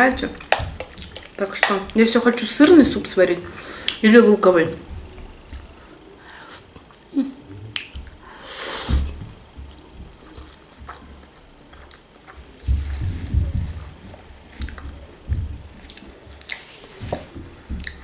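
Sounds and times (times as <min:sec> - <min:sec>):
chewing spaghetti: 0:00.2 - 0:02.8, 0:09.6 - 0:18.0.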